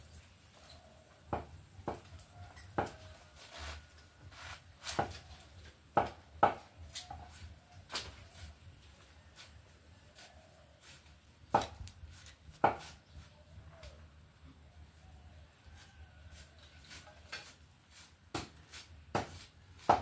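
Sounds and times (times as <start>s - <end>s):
knife chopping food on wood: 1.3s - 2.1s, 2.8s - 3.0s, 4.8s - 5.2s, 5.9s - 7.2s, 11.5s - 11.9s, 12.5s - 13.0s, 18.3s - 20.0s.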